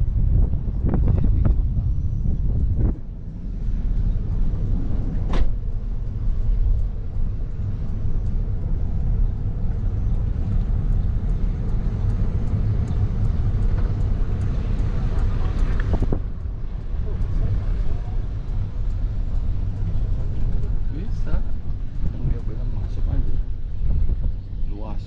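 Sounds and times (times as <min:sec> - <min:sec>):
car engine and tyres rumbling: 0:00.0 - 0:25.0.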